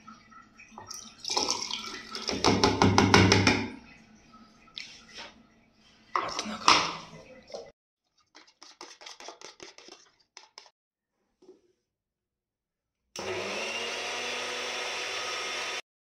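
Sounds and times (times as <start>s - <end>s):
spoon scraping seeds clicking: 8.3s - 10.7s
mixer grinder running: 13.2s - 15.8s.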